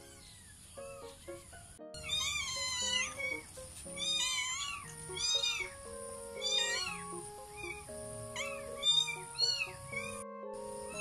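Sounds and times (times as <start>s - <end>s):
background music with held notes: 0.0s - 11.0s
cat meowing: 2.0s - 10.2s.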